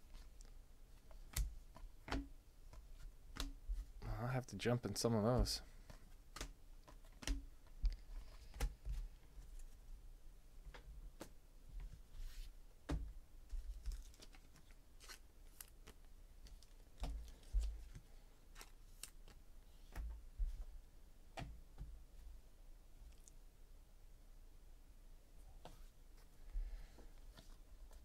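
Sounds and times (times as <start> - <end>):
cards clicking and tapping: 1.1 - 3.6, 5.4 - 9.0.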